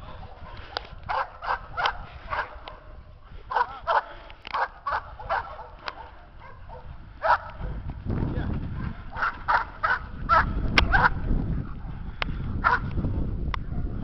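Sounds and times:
dog barking: 0.1 - 7.8, 8.8 - 11.2, 12.6 - 12.9, 13.6 - 14.0.

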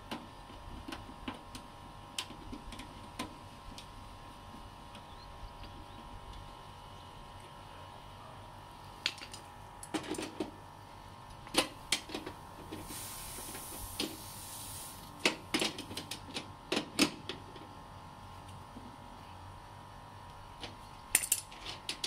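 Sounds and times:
gas hiss: 12.8 - 15.2.

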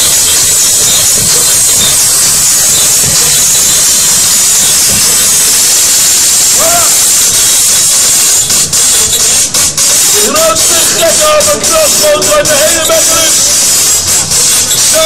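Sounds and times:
loud steady hiss: 0.0 - 15.0.

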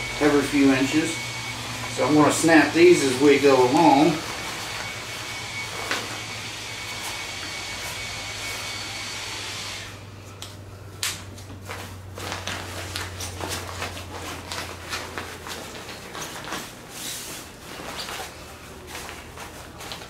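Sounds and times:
nylon fabric rustling and crackling: 11.4 - 20.0.

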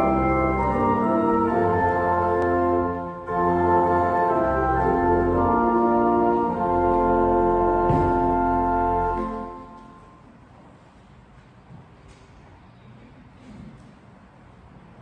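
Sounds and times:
pipe organ chords: 0.0 - 10.2.

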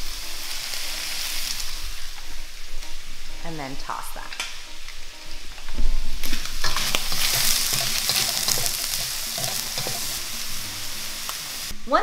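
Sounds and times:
food sizzling in a wok: 0.0 - 12.0
utensils clicking against pan: 6.3 - 10.2.

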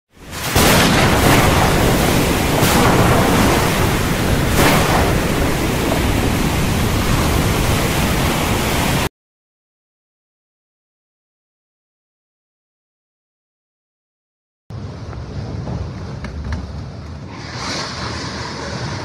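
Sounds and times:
wind: 0.1 - 9.1, 14.7 - 19.0
sea: 0.2 - 9.1.

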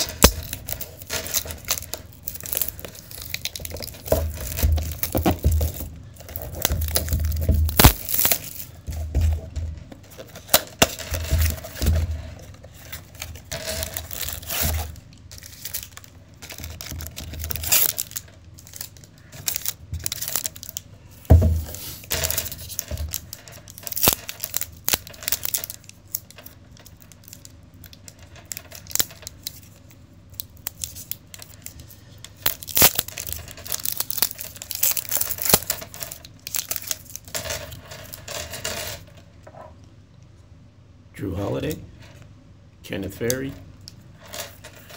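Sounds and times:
foil tearing: 0.0 - 9.0, 10.1 - 20.8, 21.6 - 26.4, 27.0 - 29.8, 30.6 - 37.3
foil packs crinkling: 0.0 - 39.0.

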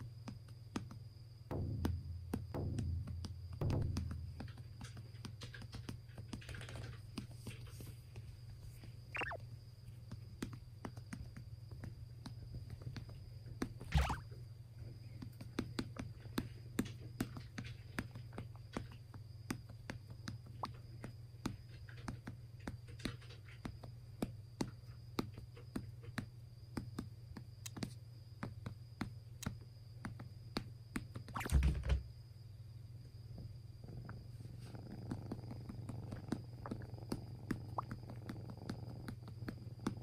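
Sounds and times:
fingers tapping on belly: 0.0 - 7.5, 9.2 - 31.5, 34.0 - 40.0
steady low hum: 13.8 - 15.2.

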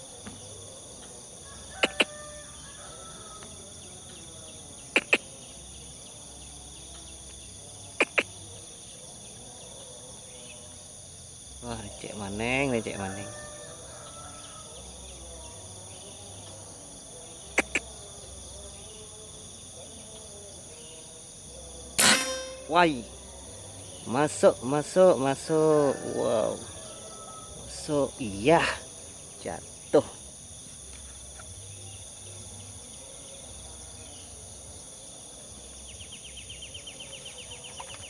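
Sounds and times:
high-pitched insect chorus: 0.0 - 38.0
rapid short chirps: 8.0 - 8.3
sharp short chips: 22.0 - 22.7.

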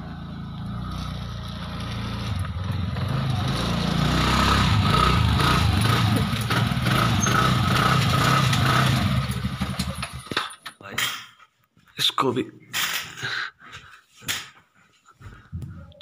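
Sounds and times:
scooter engine running: 0.0 - 10.3.

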